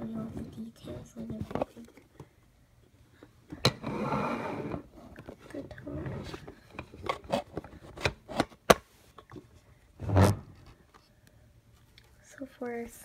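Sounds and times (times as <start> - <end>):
rubbing scrape: 10.0 - 10.6.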